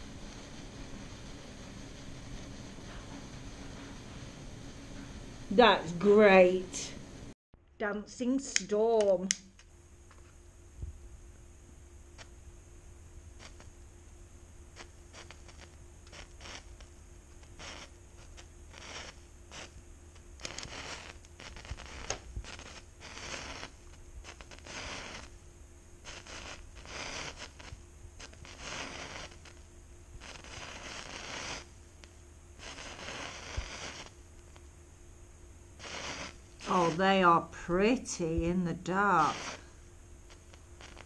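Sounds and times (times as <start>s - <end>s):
firework crackles: 0.0s - 7.0s, 13.3s - 13.8s, 14.7s - 25.4s, 26.0s - 34.7s, 35.7s - 41.0s
firework fizzing: 0.0s - 7.0s, 13.4s - 13.7s, 14.8s - 25.4s, 26.0s - 31.8s, 32.6s - 34.2s, 35.7s - 41.0s.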